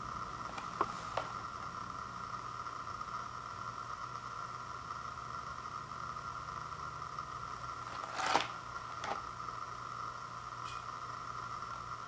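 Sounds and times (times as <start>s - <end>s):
background hum and hiss: 0.0s - 12.0s
cardboard box rustling: 0.5s - 1.4s, 7.9s - 9.2s.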